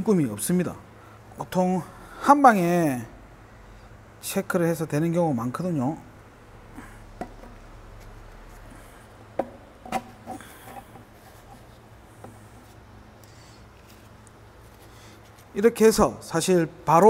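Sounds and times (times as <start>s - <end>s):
steady low hum: 0.0s - 17.0s
plastic bottle clicks and knocks: 9.4s - 10.2s.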